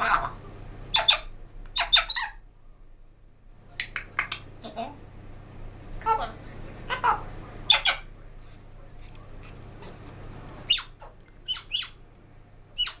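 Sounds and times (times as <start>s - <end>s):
parrot squawking: 0.0s - 2.4s, 6.0s - 8.1s, 10.7s - 12.0s, 12.8s - 13.0s.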